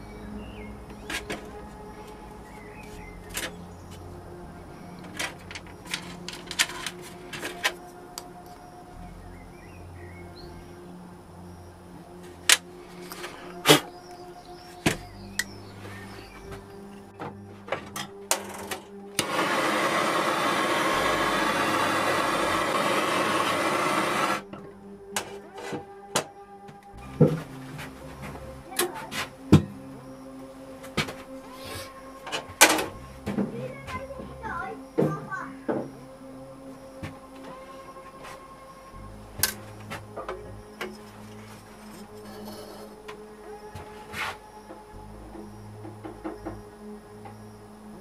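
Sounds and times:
loud steady rushing noise: 0:19.2 - 0:24.5.

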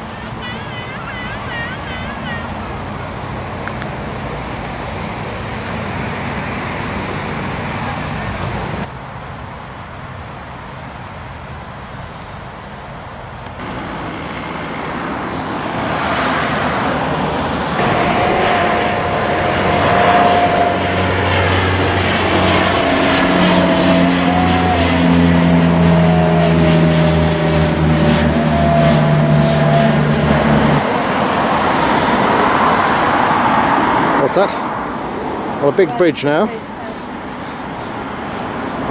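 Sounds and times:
turboprop airliner engine drone: 0:00.0 - 0:38.9.

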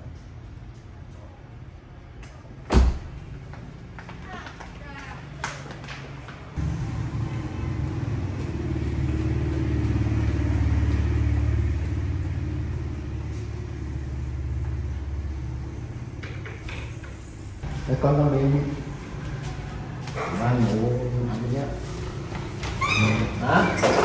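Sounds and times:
low rumble with deep hum: 0:06.6 - 0:16.2.

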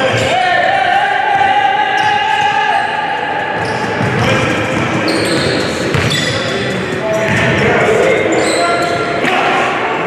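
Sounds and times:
basketball bouncing on wooden floor: 0:03.6 - 0:06.2.

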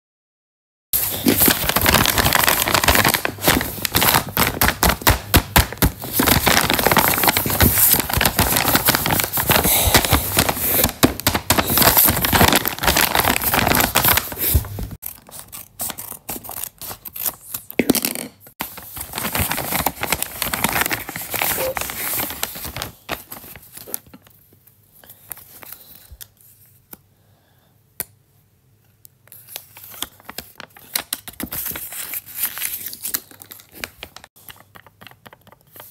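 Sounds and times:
paper bag crinkling: 0:01.0 - 0:15.0, 0:18.6 - 0:23.9
scissors cutting paper: 0:09.8 - 0:17.7
paper note rustling: 0:18.7 - 0:23.9.

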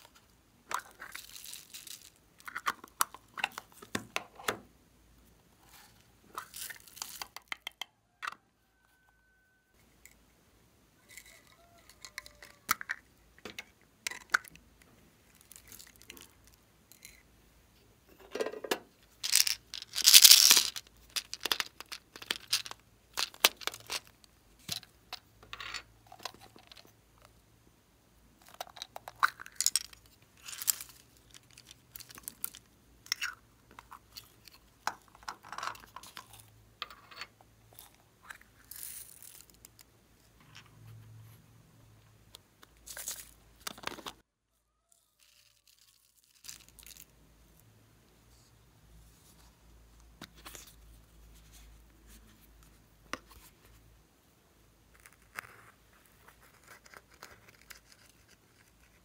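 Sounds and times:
squishy toys crinkling and crunching: 0:00.0 - 0:03.9, 0:05.7 - 0:07.6, 0:15.2 - 0:17.2, 0:19.2 - 0:24.9, 0:28.4 - 0:36.5, 0:44.9 - 0:47.6.

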